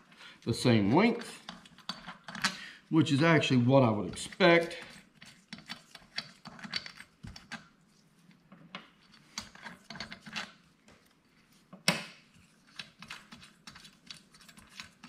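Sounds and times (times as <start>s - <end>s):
metal bolts clicking and rubbing: 1.1s - 2.6s, 4.1s - 7.6s, 8.8s - 10.6s.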